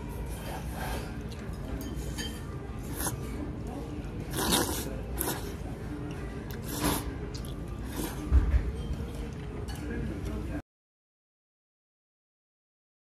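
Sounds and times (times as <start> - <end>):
faint background music: 0.0 - 10.6
noodles being slurped: 2.8 - 3.3, 4.3 - 5.6, 6.5 - 8.2.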